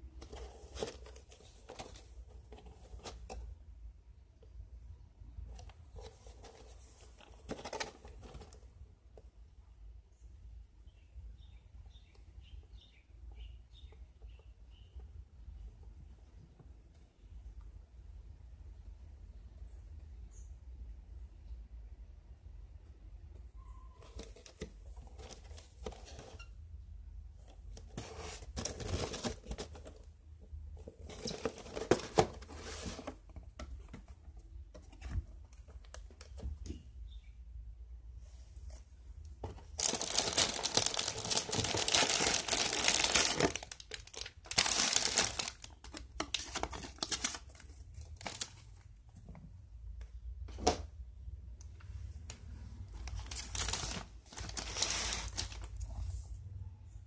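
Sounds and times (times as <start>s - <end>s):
plastic bags crinkling: 39.6s - 48.6s, 53.0s - 55.8s.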